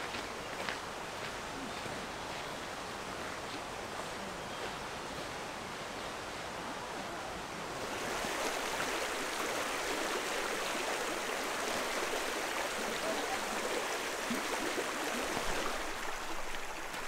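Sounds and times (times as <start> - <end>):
stream running over stones: 7.7 - 17.0.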